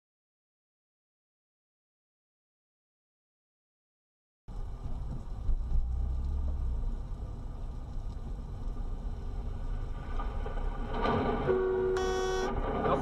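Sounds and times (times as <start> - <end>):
car engine and road rumble: 4.5 - 13.0.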